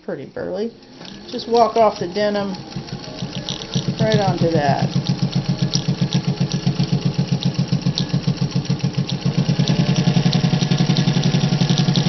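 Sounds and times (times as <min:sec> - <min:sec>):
sewing machine stitching leather: 0:01.0 - 0:12.0.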